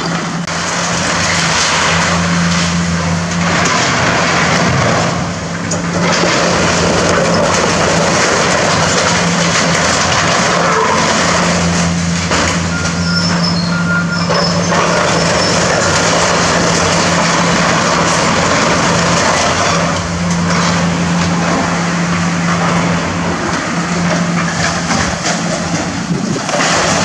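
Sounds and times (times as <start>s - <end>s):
excavator diesel engine: 0.0s - 27.0s
sheet metal and debris crunching: 0.0s - 27.0s.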